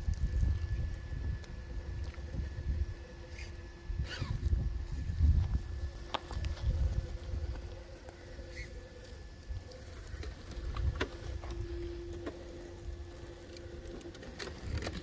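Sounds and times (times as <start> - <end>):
electric motor whining: 0.0 - 15.0
stems rustling against truck: 4.8 - 15.0.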